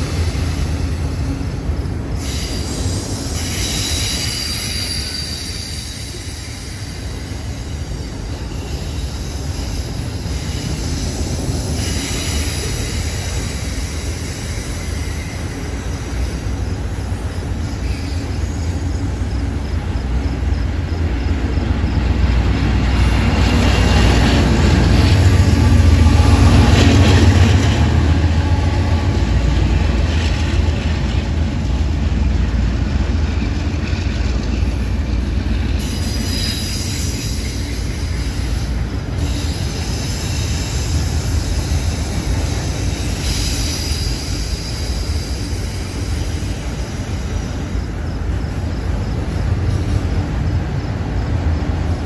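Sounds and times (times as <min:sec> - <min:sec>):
diesel locomotive drone: 0:00.0 - 0:52.0
steel wheels rumbling on rail: 0:00.0 - 0:52.0
high wheel squeal: 0:02.1 - 0:29.2, 0:35.6 - 0:50.8.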